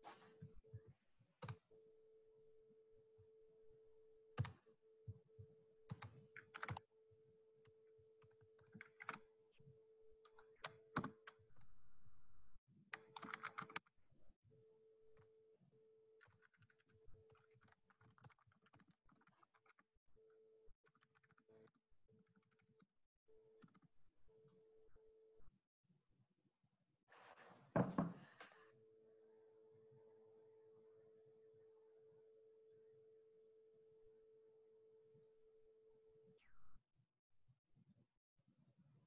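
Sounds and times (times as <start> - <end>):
computer keyboard typing: 4.4 - 4.6, 5.9 - 6.9, 8.2 - 9.2, 10.2 - 11.4, 13.0 - 13.8, 16.2 - 19.8, 20.8 - 22.8.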